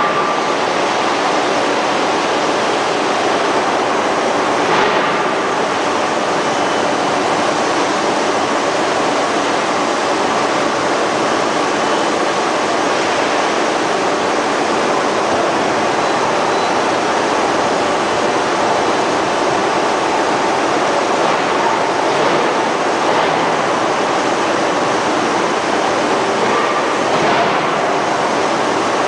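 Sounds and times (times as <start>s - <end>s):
heavy industrial machinery roar: 0.0s - 29.0s.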